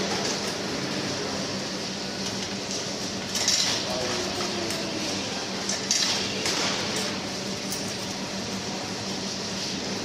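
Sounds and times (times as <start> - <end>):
coins clinking in machine: 6.8 - 8.6.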